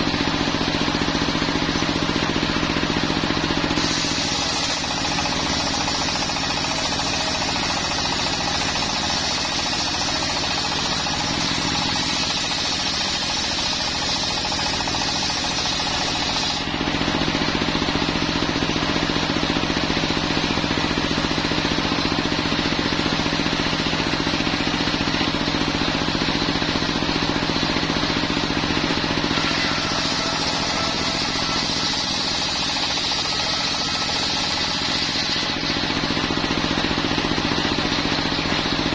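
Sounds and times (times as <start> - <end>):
circular saw cutting wood: 0.0 - 18.9, 26.6 - 38.5
diesel engine running: 0.0 - 38.9.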